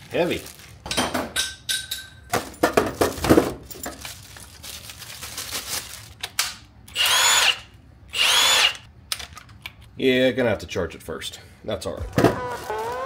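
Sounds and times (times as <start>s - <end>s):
packaging rustling: 0.0s - 0.9s, 3.0s - 6.3s
plastic parts clattering: 2.3s - 6.6s
impact wrench motor spinning: 6.9s - 8.9s.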